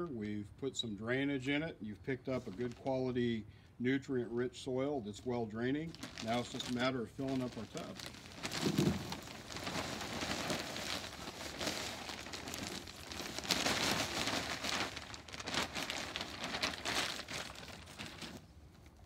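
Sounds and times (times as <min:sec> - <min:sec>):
plastic bag crinkling: 0:05.9 - 0:19.0.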